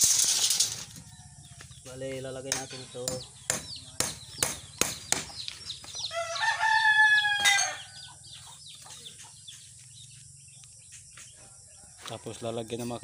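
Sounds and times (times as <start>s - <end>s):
hammer knocking on wood: 2.5s - 5.4s
rooster crowing: 6.1s - 8.1s.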